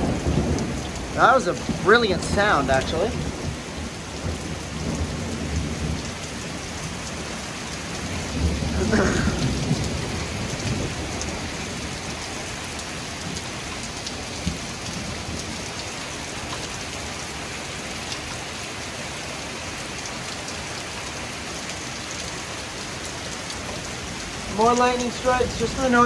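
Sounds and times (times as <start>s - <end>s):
thunder rumble: 0.0s - 7.0s, 8.0s - 12.2s
heavy rain pouring on street: 0.0s - 26.0s.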